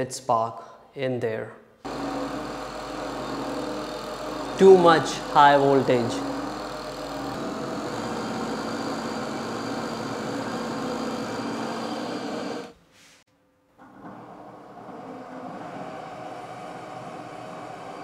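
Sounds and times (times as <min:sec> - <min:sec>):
belt-driven motor running: 0:01.9 - 0:12.8, 0:14.6 - 0:18.0
electric arcing at motor brushes: 0:01.9 - 0:12.8.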